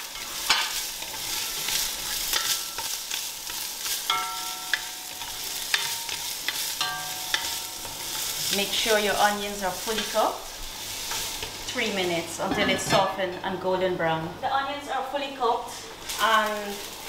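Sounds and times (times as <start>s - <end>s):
onions sizzling in oil: 0.0s - 17.0s
spatula scraping and tapping pot: 0.2s - 8.3s.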